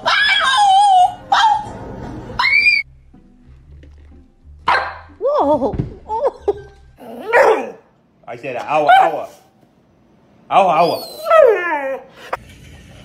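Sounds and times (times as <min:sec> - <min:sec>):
dogs howling and whining: 0:00.0 - 0:01.7, 0:10.8 - 0:12.2.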